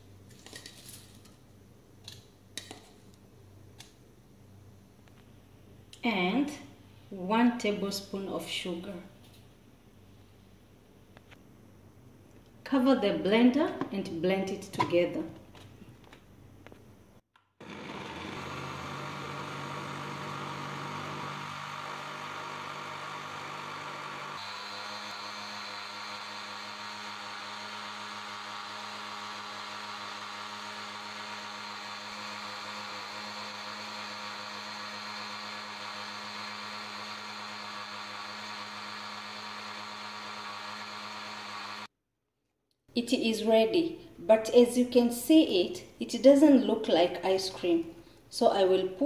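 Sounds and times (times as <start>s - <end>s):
electric blender motor running: 17.4s - 41.9s.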